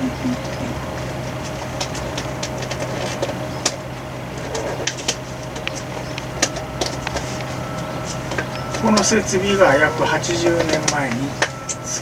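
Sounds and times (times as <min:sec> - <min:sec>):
low mechanical hum: 0:00.0 - 0:12.0
faint high steady tone: 0:05.9 - 0:12.0.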